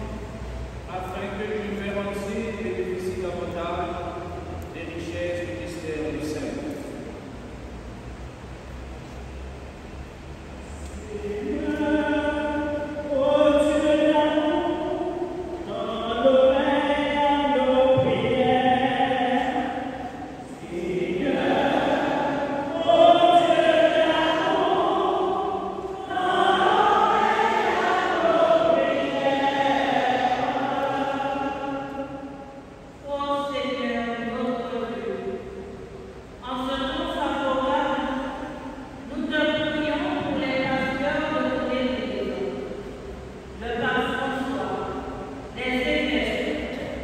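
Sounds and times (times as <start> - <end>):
congregation singing a chant: 10.8 - 35.7.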